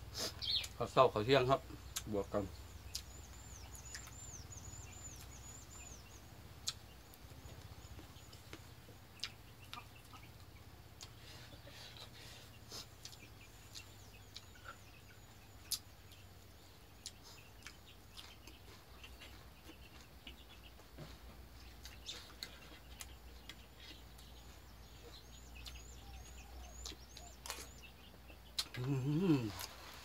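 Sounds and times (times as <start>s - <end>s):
faint low hum: 0.0s - 30.0s
small bird chirping: 0.1s - 30.0s
soft clicks of eating: 2.8s - 4.3s, 6.6s - 11.2s, 13.0s - 16.3s, 17.0s - 20.8s, 21.6s - 29.8s.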